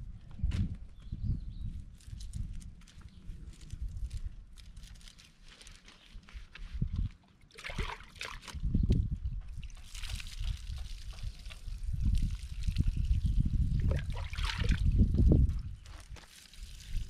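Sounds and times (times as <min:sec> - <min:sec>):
water pouring and splashing: 0:07.5 - 0:08.7, 0:09.5 - 0:17.0.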